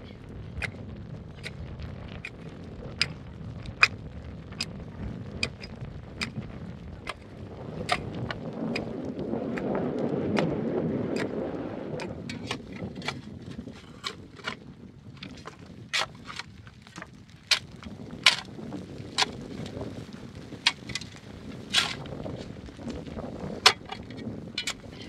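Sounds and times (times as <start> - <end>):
hoe striking stony soil: 5.4 - 6.4, 7.1 - 8.9, 12.0 - 14.6, 15.2 - 25.0.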